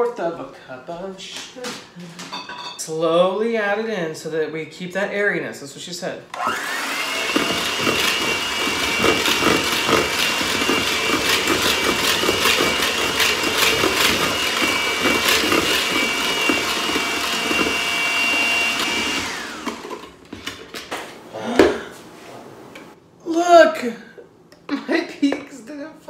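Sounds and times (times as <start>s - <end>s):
electric hand mixer whine: 6.4s - 20.2s.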